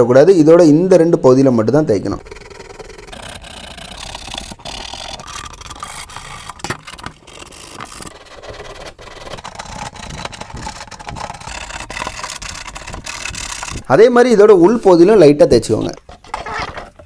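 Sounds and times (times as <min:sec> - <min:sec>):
sandpaper rubbing plastic: 0:02.2 - 0:14.0, 0:15.8 - 0:17.0.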